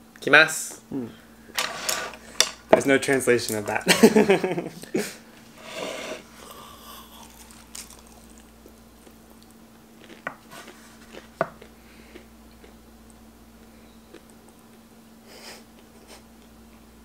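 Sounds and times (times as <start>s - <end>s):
faint steady hum: 0.0s - 17.0s
chewing crispy fried chicken: 6.4s - 14.8s.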